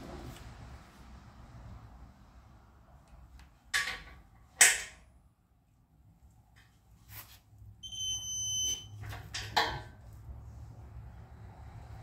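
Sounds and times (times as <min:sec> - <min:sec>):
torque wrench beep: 0:07.8 - 0:09.0.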